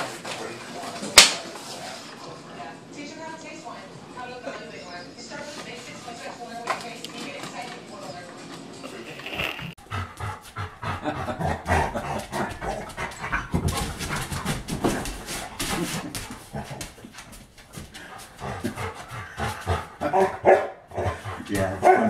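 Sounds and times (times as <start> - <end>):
dog panting rapidly: 9.8 - 22.0.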